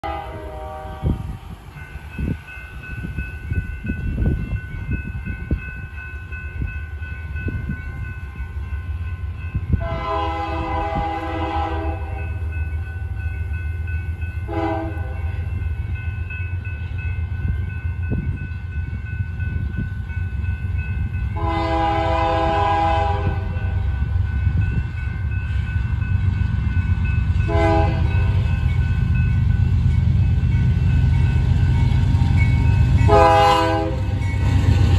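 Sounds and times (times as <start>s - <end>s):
locomotive air horn blasts: 0.0s - 1.3s, 9.8s - 12.3s, 14.5s - 15.3s, 21.4s - 23.8s, 27.5s - 28.4s, 33.1s - 34.1s.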